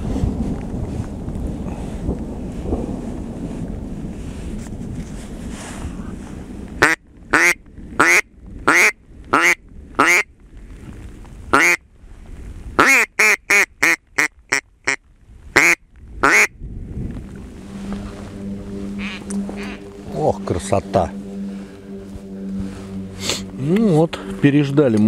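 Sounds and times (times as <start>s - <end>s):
rain hiss: 0.0s - 12.8s, 17.0s - 24.8s
duck call quacks: 6.8s - 10.3s, 11.5s - 11.8s, 12.8s - 15.0s, 15.6s - 16.5s, 19.0s - 20.0s.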